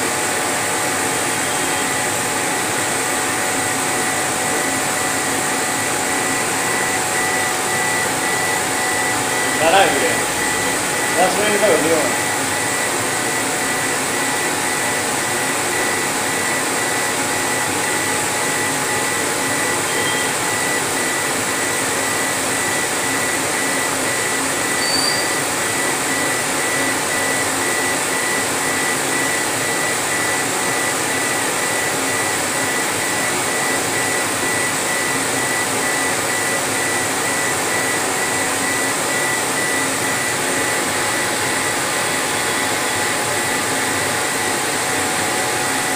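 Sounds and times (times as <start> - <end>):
laser engraver whirring: 0.0 - 45.9
faint high tone: 19.9 - 20.3.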